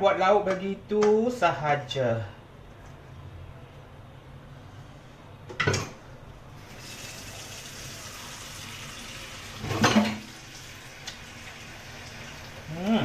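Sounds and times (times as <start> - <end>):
tap water running into wok: 6.6 - 12.7.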